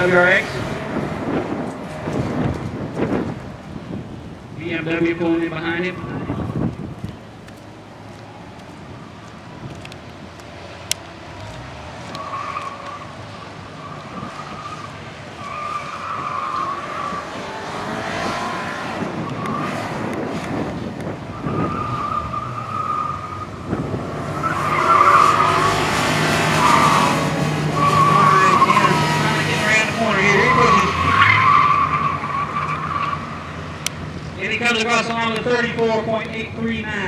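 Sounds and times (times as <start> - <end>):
car engine revving: 10.6 - 35.7
tyres squealing: 24.3 - 33.5.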